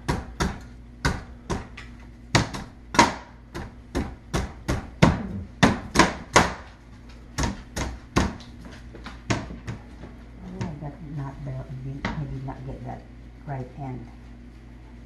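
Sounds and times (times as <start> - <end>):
cleaver chopping coconut husk: 0.0 - 6.7, 7.4 - 8.5.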